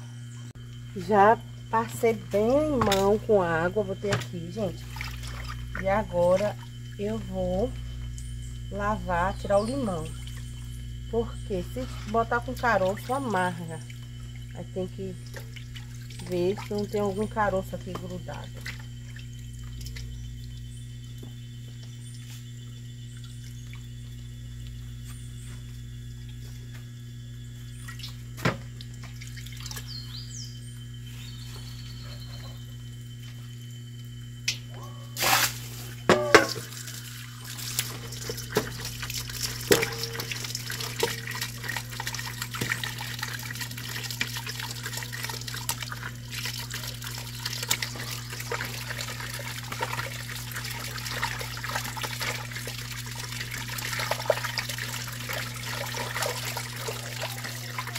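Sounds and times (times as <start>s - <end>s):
tap water running into bowl: 36.1s - 57.9s.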